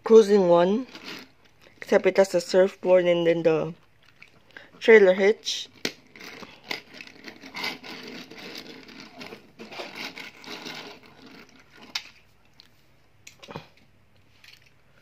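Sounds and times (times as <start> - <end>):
toy cars scraping on plastic tabletop: 0.8 - 1.3, 6.0 - 12.1.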